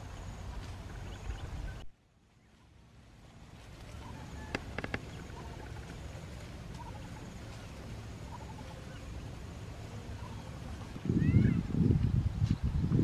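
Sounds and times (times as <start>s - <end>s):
low background rumble: 0.0s - 13.0s
ducks calling: 3.6s - 11.6s.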